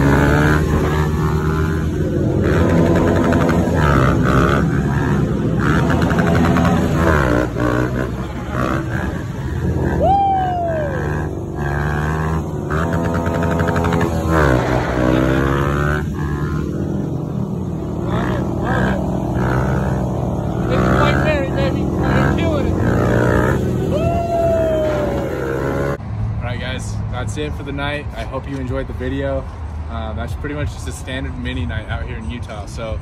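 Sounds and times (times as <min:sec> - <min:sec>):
mini bike engines revving: 0:00.0 - 0:26.0.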